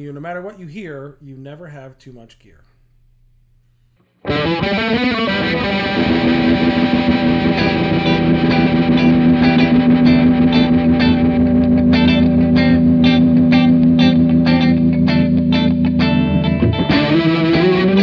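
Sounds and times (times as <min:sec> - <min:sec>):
held guitar chord ringing: 0:04.2 - 0:18.0
strummed guitar chords: 0:04.2 - 0:18.0.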